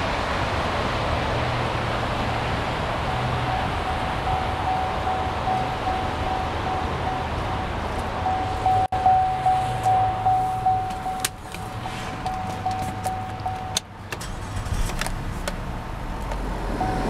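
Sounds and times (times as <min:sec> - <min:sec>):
car engine starting and running: 0:00.0 - 0:17.0
car warning chime pinging: 0:03.1 - 0:13.9, 0:16.8 - 0:17.0.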